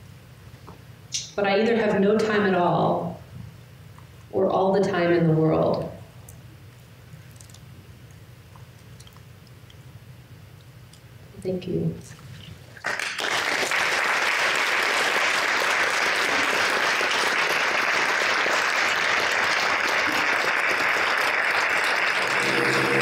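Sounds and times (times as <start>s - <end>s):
audience applauding: 12.8s - 23.0s
music: 22.2s - 23.0s.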